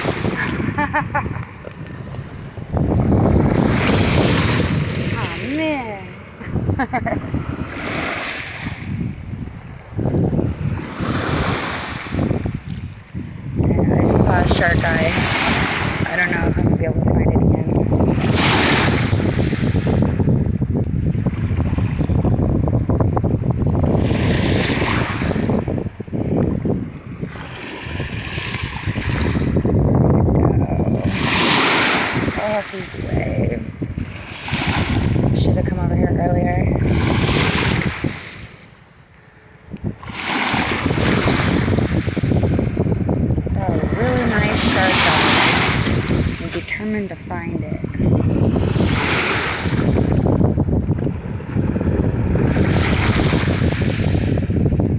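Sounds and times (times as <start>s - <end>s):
small waves washing over sand: 0.0s - 20.2s, 23.9s - 29.6s, 30.5s - 38.8s, 39.8s - 50.4s, 51.1s - 54.5s
wind buffeting microphone: 0.0s - 54.9s
small surf waves on shells: 31.0s - 33.0s.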